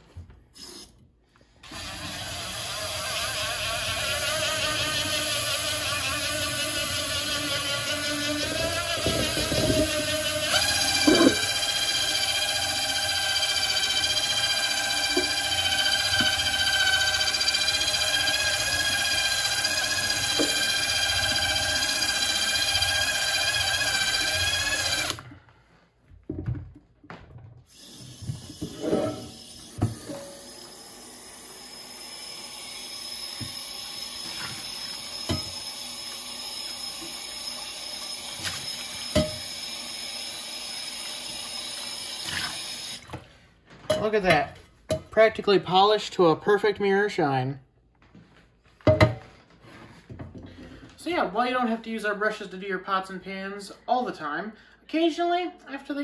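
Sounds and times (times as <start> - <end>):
drill motor whine: 1.7 - 25.2, 29.4 - 43.0.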